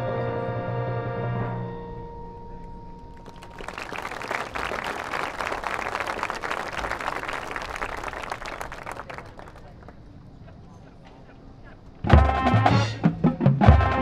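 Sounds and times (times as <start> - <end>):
audience applauding: 3.1 - 10.0
marching band brass chord: 12.1 - 14.0.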